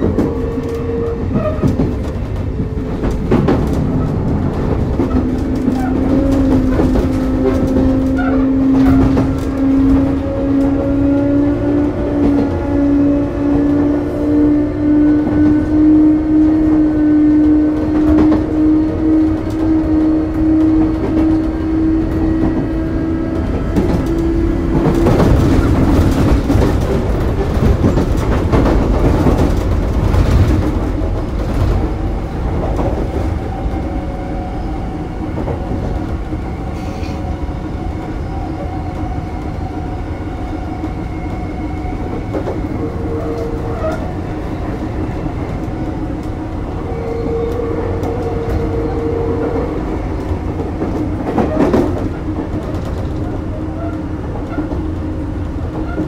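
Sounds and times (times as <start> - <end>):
wheels clattering over rail joints: 0.0 - 11.4, 20.6 - 33.2.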